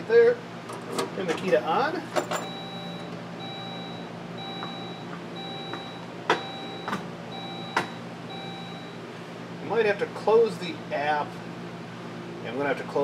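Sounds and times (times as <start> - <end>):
steady low hum: 0.0 - 13.0
car warning chime beeping: 2.4 - 9.0.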